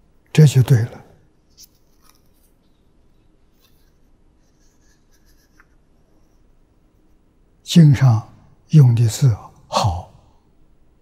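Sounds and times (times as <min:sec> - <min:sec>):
paper booklet rustling: 0:01.6 - 0:02.8.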